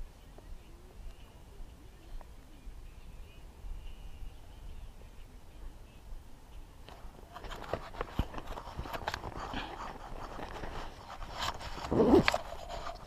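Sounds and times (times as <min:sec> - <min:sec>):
clothing rustling against camera: 0:06.9 - 0:13.0.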